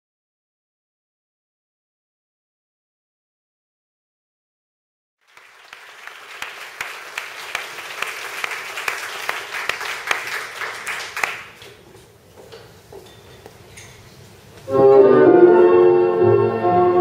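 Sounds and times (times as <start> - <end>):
audience applauding: 5.2 - 11.8.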